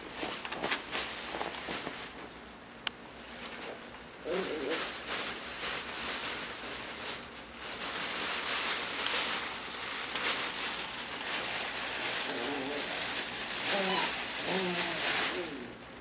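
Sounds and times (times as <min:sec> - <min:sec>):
fabric rustling and crinkling: 0:00.0 - 0:16.0
puppy whimpering: 0:13.6 - 0:15.7.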